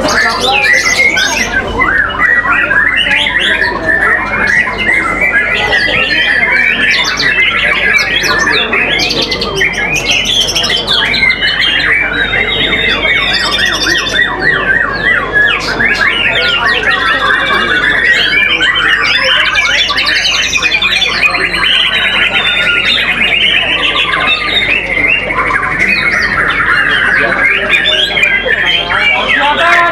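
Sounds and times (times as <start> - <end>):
birds singing chirps and trills: 0.0 - 29.9.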